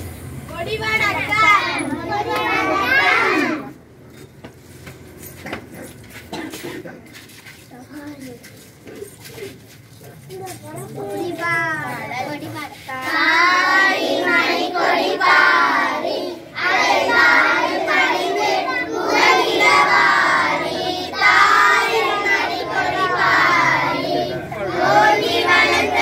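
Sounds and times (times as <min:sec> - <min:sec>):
children singing in unison: 0:13.1 - 0:26.0.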